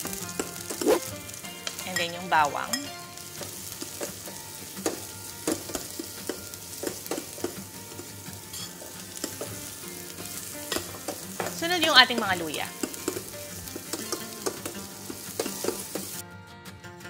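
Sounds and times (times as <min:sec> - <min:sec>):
onion sizzling in hot oil: 0:00.0 - 0:16.2
metal ladle clinking on pot: 0:08.5 - 0:09.5.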